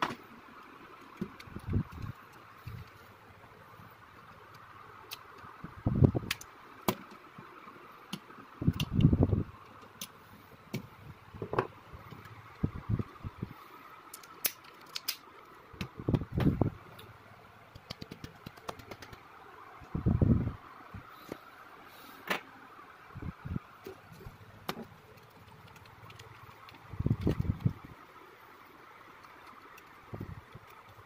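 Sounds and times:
small plastic parts clicking: 6.2s - 7.2s, 14.1s - 16.2s.

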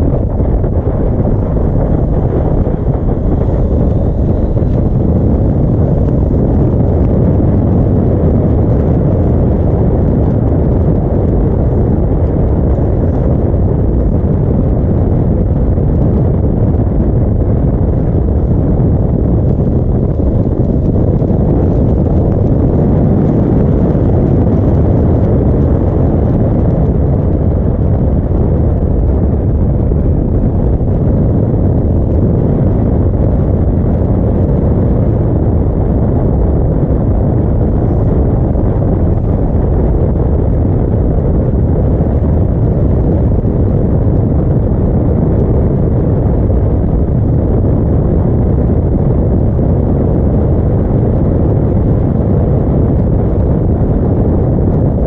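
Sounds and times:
motorcycle engine cruising: 0.0s - 7.7s
wind noise on microphone: 0.0s - 55.0s.

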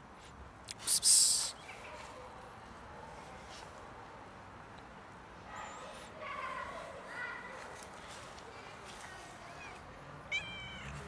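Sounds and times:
faint outdoor background: 0.0s - 11.0s
person hissing psst: 0.7s - 1.6s.

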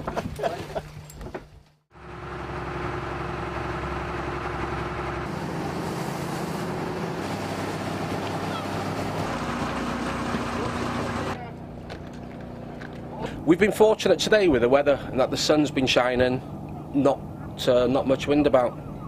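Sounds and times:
boat engine drone: 1.9s - 19.0s
water rushing along hull: 2.2s - 11.4s.

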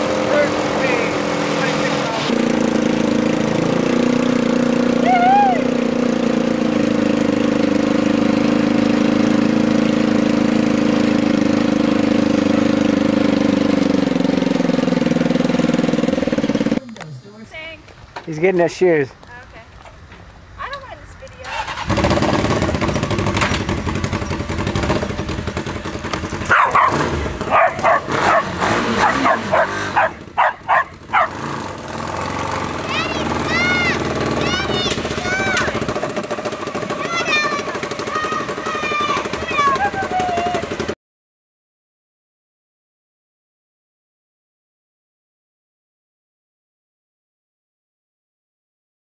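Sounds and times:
motorcycle engine idling: 0.2s - 17.7s, 21.5s - 41.0s
dog barking: 26.5s - 31.4s.

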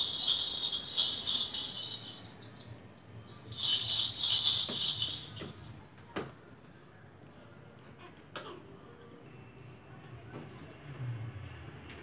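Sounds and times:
plastic baby rattle shaking: 0.0s - 2.7s, 3.5s - 5.7s.

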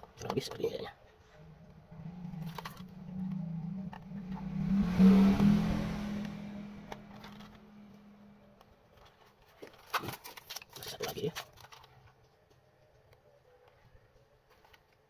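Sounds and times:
vehicle passing by: 1.3s - 8.6s.

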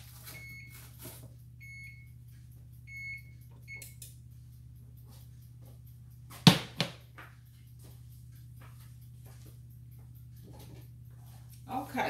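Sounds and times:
control panel beeping: 2.9s - 4.0s
bowl knocking on cooktop: 6.5s - 7.0s.

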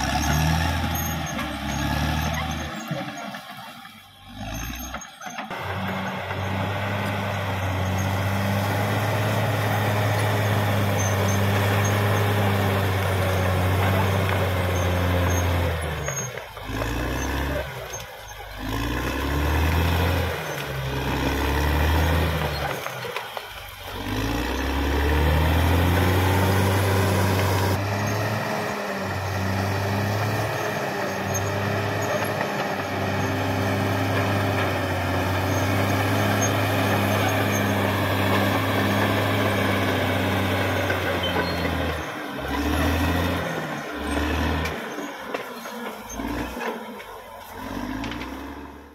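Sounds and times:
bulldozer diesel engine working: 0.0s - 48.9s.

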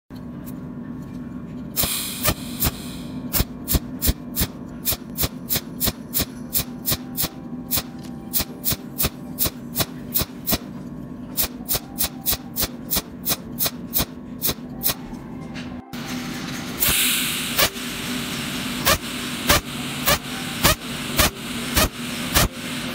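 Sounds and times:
welding machine hum: 1.7s - 15.1s, 15.9s - 22.9s
welding pulses snapping: 18.8s - 22.5s.

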